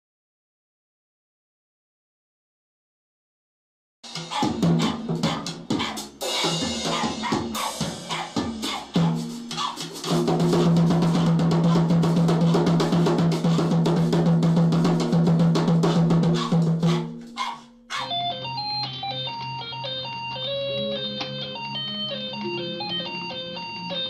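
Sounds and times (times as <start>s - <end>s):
drum kit playing: 4.0s - 18.2s.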